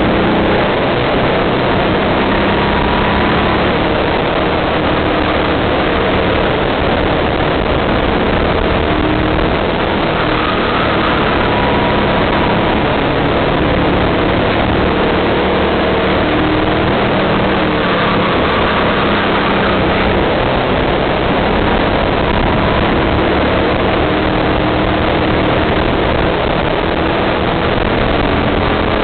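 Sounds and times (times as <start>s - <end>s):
go-kart engine running: 0.0s - 29.0s
wind noise on microphone: 0.0s - 29.0s.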